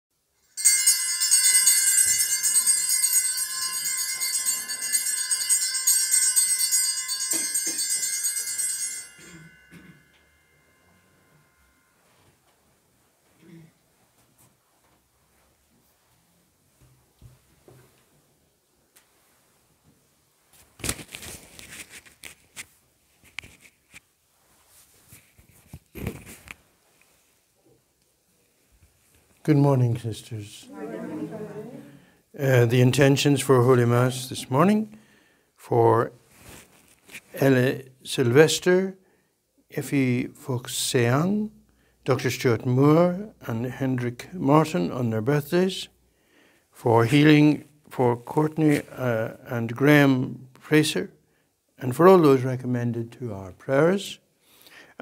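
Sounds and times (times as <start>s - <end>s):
small altar bells jingling: 0.4s - 12.0s
rustling and crinkling: 18.9s - 27.5s, 36.2s - 37.4s.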